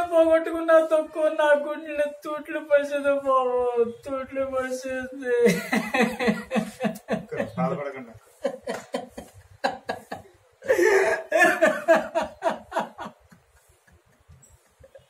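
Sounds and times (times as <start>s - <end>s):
man sobbing and wailing: 10.6s - 12.3s.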